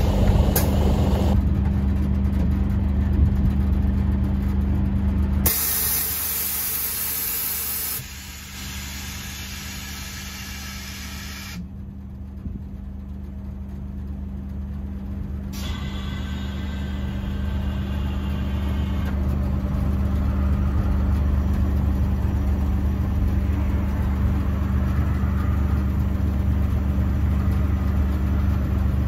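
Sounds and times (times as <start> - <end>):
bus engine idling: 0.0 - 29.0
compressed air hissing: 5.5 - 11.6.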